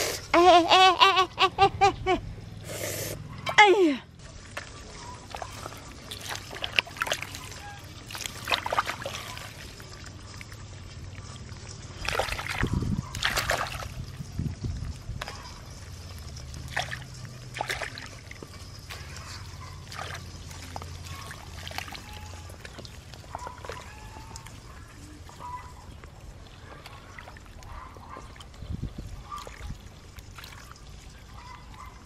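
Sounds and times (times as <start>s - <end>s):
muddy water sloshing and splashing: 4.2s - 32.0s
hands squelching through mud: 4.4s - 10.6s, 11.2s - 14.2s, 16.6s - 25.4s.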